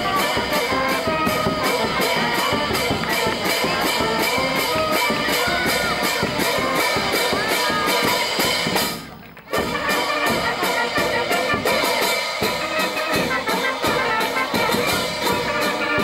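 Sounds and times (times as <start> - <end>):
brass band music with drums: 0.0 - 16.0.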